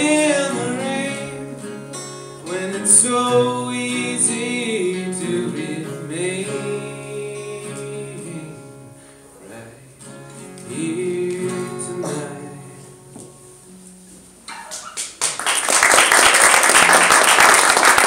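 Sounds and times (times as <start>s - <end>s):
man singing: 0.0s - 13.4s
acoustic guitar: 0.0s - 15.4s.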